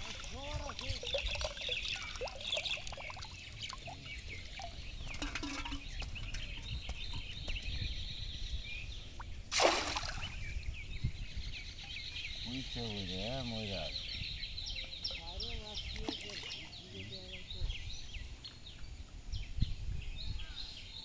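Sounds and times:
birds chirping: 0.0s - 21.0s
loud splash on water: 9.5s - 10.6s.

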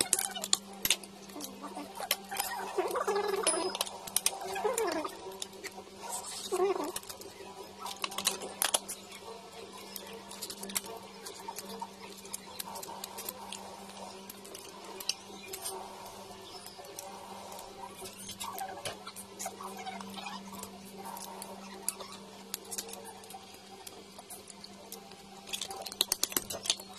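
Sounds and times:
crab shell snapping and clicking: 0.0s - 2.6s, 7.9s - 9.0s, 21.1s - 26.9s
sucking and chewing: 0.0s - 9.0s.

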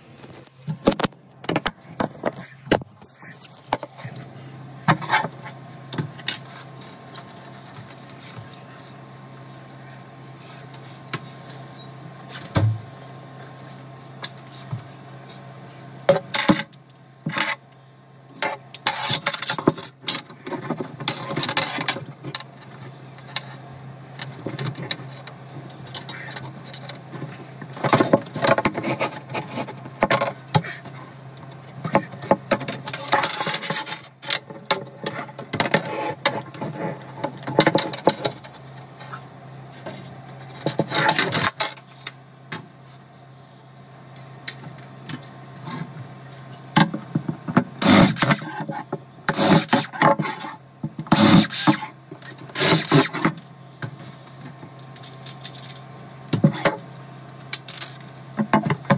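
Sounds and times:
steady low hum: 0.0s - 58.9s
tools scraping and knocking in cabinet: 31.8s - 39.2s, 39.8s - 41.8s.

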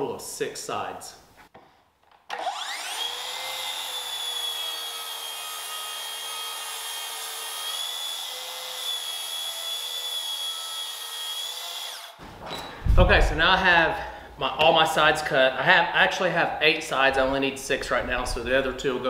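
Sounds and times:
circular saw cutting plywood: 2.3s - 12.2s.

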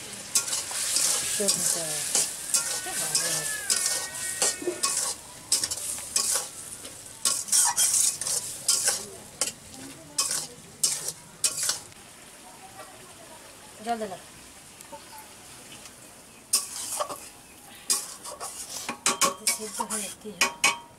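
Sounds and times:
frying sizzle: 0.0s - 20.9s
metal spatula scraping a wok: 0.2s - 12.0s, 16.5s - 20.9s.

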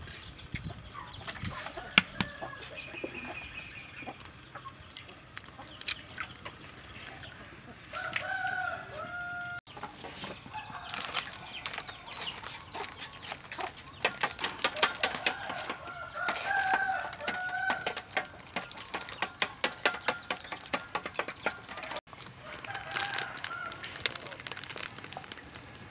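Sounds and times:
rooster crowing: 7.9s - 9.7s, 14.8s - 18.0s, 22.4s - 24.0s
spoon beating eggs in steel bowl: 12.2s - 22.0s.

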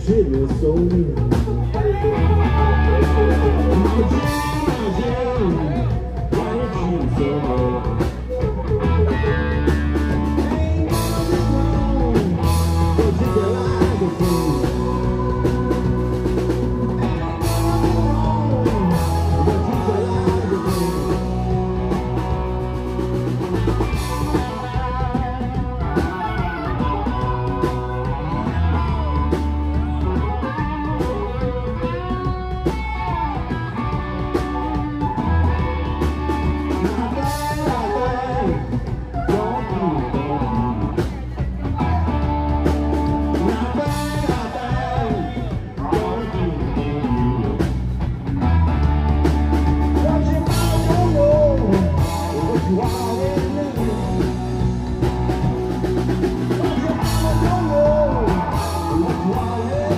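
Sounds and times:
bass guitar: 0.0s - 59.9s
drum kit: 0.0s - 59.9s
electric guitar bending notes: 0.0s - 59.9s.

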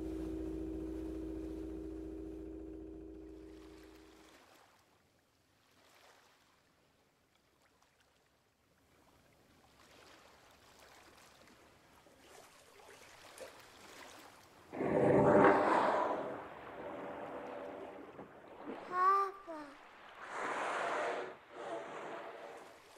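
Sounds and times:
water lapping: 0.0s - 22.9s
sudden loud sound: 14.8s - 18.3s.

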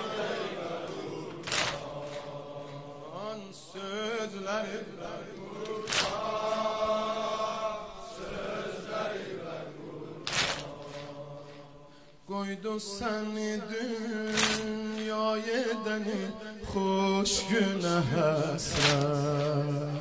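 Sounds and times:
loud sharp beats: 1.4s - 2.8s, 5.7s - 6.5s
man singing lament: 3.0s - 7.4s, 11.2s - 20.0s.

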